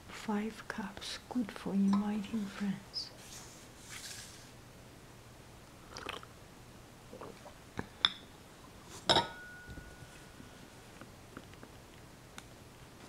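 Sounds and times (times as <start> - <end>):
teacup clinking on saucer: 9.1 - 9.8.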